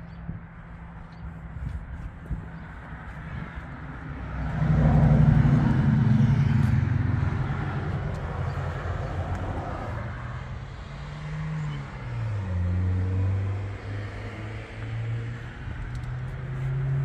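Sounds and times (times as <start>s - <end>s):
vehicle engine passing by: 3.3s - 17.0s
engine with falling pitch: 4.3s - 17.0s.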